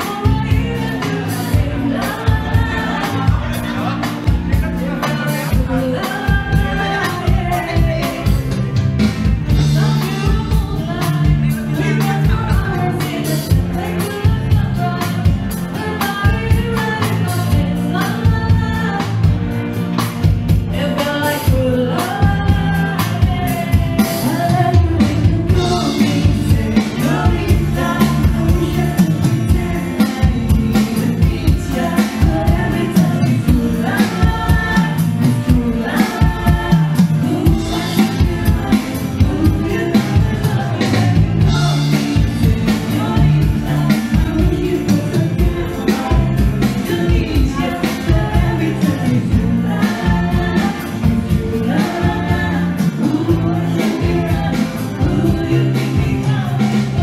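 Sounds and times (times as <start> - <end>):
person singing: 0.0 - 8.8, 9.4 - 19.3, 20.7 - 57.0
bass guitar: 0.0 - 57.0
drums keeping a steady beat: 0.0 - 57.0
electric and acoustic guitars: 0.0 - 57.0.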